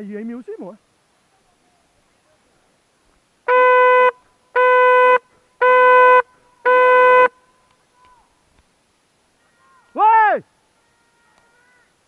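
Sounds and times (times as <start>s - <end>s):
hunting horn blasts: 3.5s - 7.3s.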